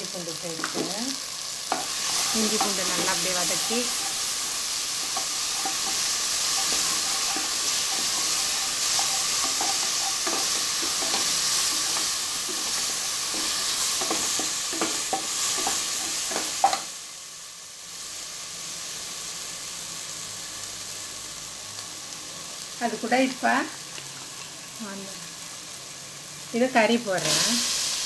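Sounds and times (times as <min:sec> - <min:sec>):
food sizzling in oil: 0:00.0 - 0:28.0
wooden spatula scraping pot: 0:01.7 - 0:16.8.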